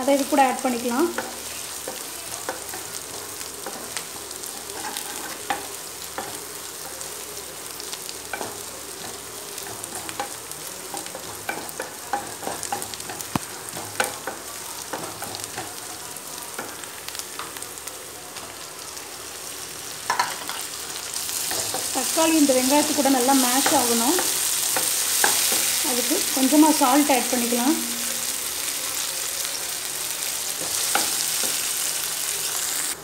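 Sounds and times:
onions sizzling in hot oil: 0.0 - 33.0
wooden spatula scraping a pan: 1.1 - 6.4.

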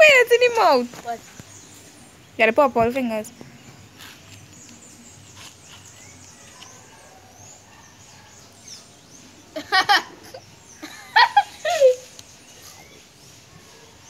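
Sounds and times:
faint bird chirping: 0.0 - 14.0
boys laughing: 9.5 - 12.2.

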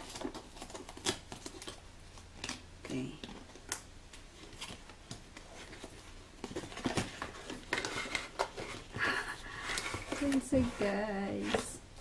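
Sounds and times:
plastic and card clicks and scrapes: 3.2 - 11.8.

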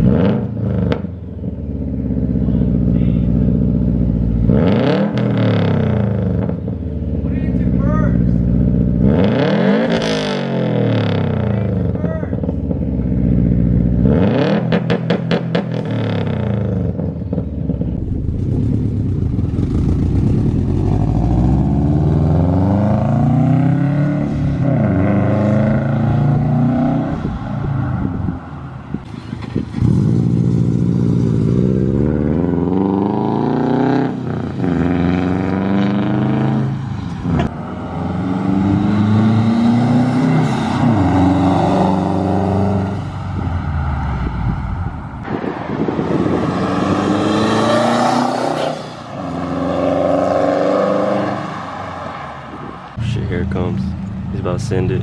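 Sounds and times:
car engine revving: 0.0 - 55.0
car accelerating past: 17.7 - 53.2.

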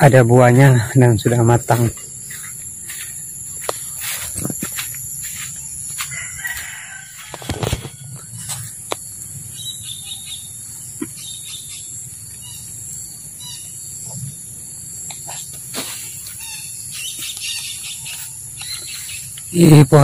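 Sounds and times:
high insect drone: 0.0 - 20.0
bird chirps: 1.2 - 6.0, 8.2 - 14.4, 15.0 - 20.0.

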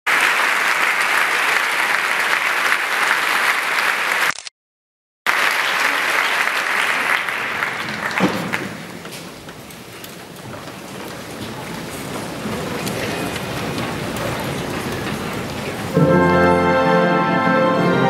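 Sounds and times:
crowd applauding: 0.1 - 4.4, 5.3 - 9.2.

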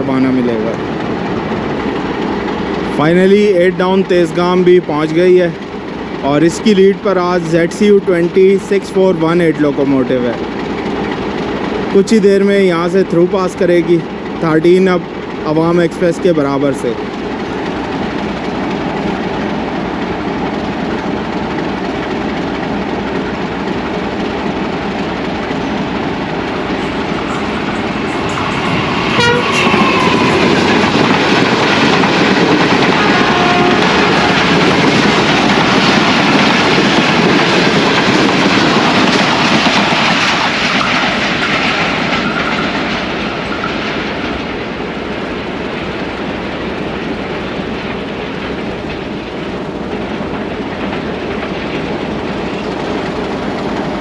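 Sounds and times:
diesel locomotive rumble: 0.0 - 54.0
train wheels on rails: 0.0 - 54.0.

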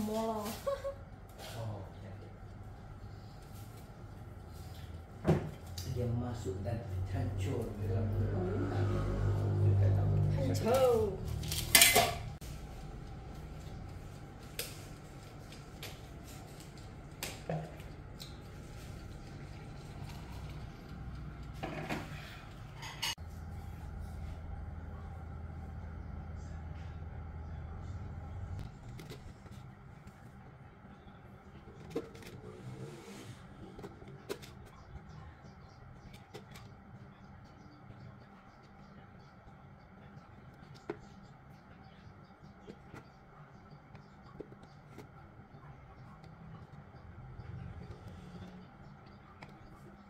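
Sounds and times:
low steady hum: 0.0 - 50.0.

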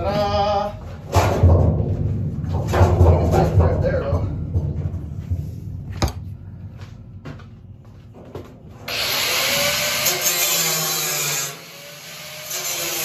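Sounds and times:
angle grinder cutting steel: 8.9 - 13.0.

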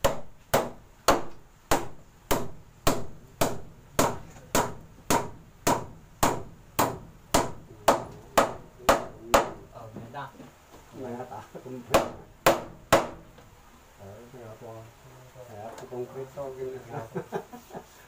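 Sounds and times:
hammer striking wood: 0.0 - 9.6, 11.9 - 13.4.

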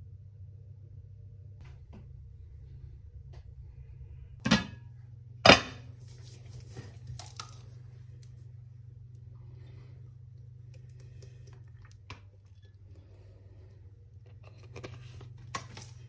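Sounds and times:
low hum: 0.0 - 16.0
kitchenware knocking down: 4.4 - 4.8, 5.4 - 5.9.

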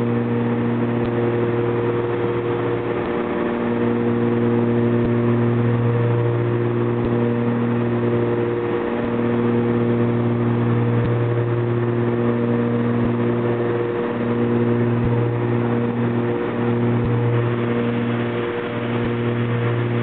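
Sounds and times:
propeller engines droning: 0.0 - 20.0.

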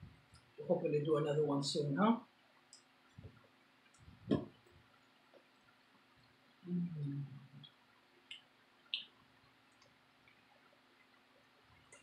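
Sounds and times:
wet clicks of eating with fingers: 7.6 - 10.4.

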